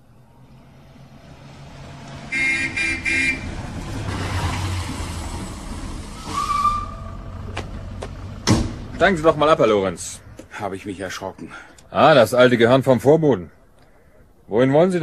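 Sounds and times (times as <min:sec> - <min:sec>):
car horn toots: 0:02.3 - 0:03.6
short squeal: 0:06.2 - 0:07.2.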